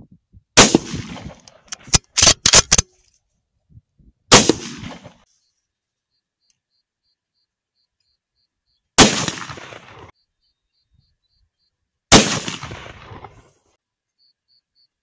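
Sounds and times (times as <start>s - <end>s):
rifle shots with echo: 0.6s - 1.5s, 4.3s - 5.2s, 9.0s - 10.1s, 12.1s - 13.4s
sharp clicks: 1.4s - 2.9s.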